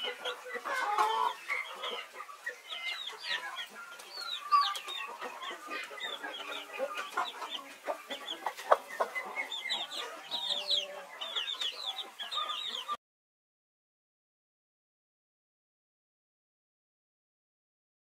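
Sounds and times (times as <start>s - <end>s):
chicks peeping rapidly: 0.0s - 13.0s
hen clucking low: 4.3s - 12.9s.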